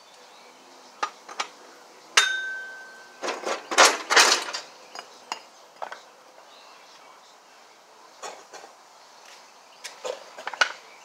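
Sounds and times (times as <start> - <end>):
sharp ringing metallic clink: 2.2 - 3.2
metal parts clattering and scraping: 3.1 - 6.0.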